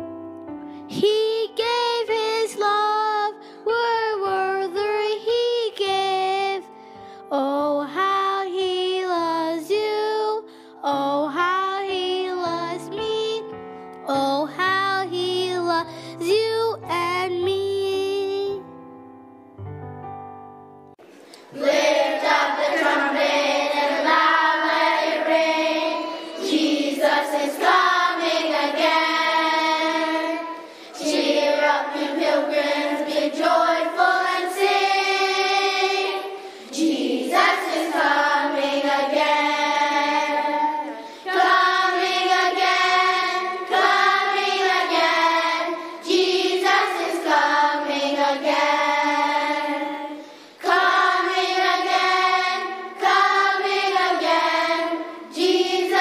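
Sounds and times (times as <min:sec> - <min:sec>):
children singing together: 0:21.4 - 0:56.0.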